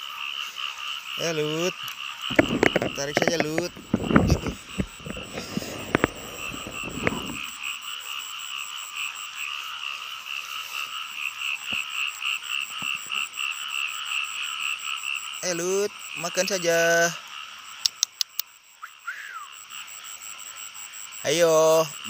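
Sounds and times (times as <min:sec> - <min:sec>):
frogs croaking in chorus: 0:00.0 - 0:22.0
rustling near microphone: 0:02.3 - 0:07.5.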